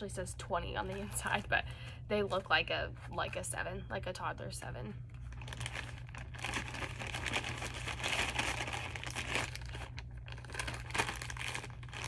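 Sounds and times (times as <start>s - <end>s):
plastic bag crinkling: 5.1s - 12.0s.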